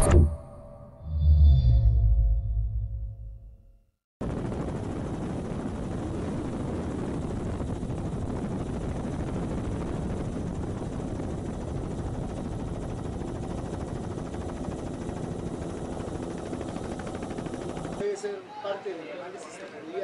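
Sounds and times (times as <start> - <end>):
helicopter rotor and engine drone: 4.2 - 18.2.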